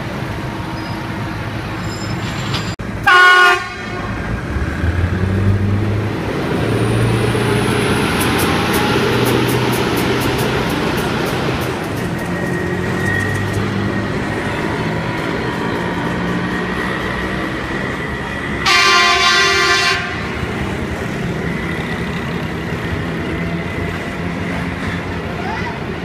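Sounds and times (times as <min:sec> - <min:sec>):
engine and street traffic: 0:00.0 - 0:26.0
loud horn: 0:03.0 - 0:04.2, 0:18.6 - 0:20.5.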